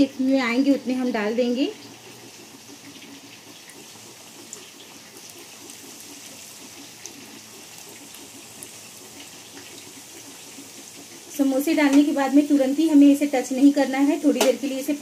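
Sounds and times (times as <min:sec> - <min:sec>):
deep-frying oil sizzling: 0:00.0 - 0:15.0
faint oil pops: 0:14.3 - 0:14.6.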